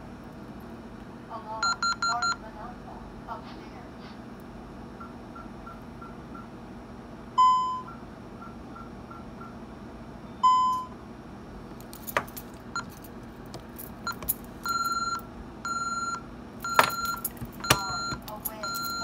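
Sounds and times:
security keypad beeping: 0:01.6 - 0:02.4, 0:14.0 - 0:19.0
exit delay warning beeps: 0:01.6 - 0:02.5, 0:07.4 - 0:09.6, 0:10.4 - 0:11.0, 0:14.1 - 0:19.0
fingers clicking on keypad: 0:16.7 - 0:19.0.

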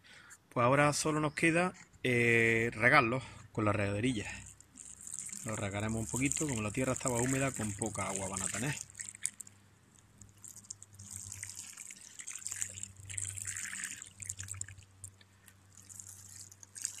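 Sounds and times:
water sprinkling onto soil: 0:04.0 - 0:17.0.

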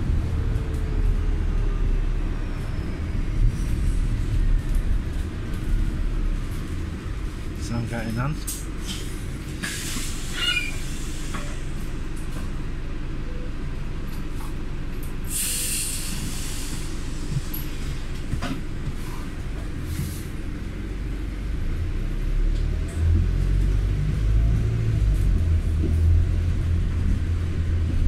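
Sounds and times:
deep hum: 0:00.0 - 0:07.7
vehicle engine rumble: 0:00.0 - 0:28.0.

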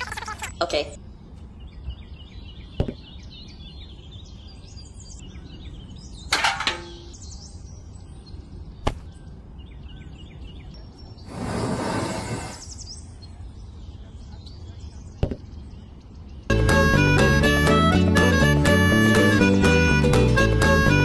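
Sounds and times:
small birds chirping: 0:00.0 - 0:17.2
outdoor background noise: 0:00.0 - 0:19.4.

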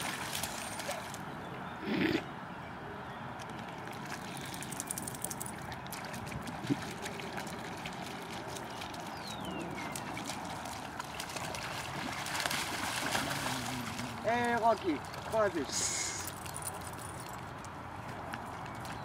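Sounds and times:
water splashing and trickling: 0:00.0 - 0:01.4, 0:03.4 - 0:19.0
outdoor background noise: 0:00.0 - 0:19.0.

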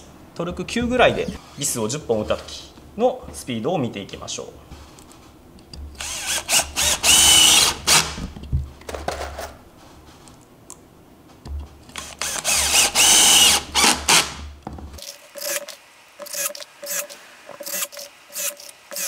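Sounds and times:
drill motor whine: 0:06.0 - 0:08.0, 0:12.0 - 0:14.2.

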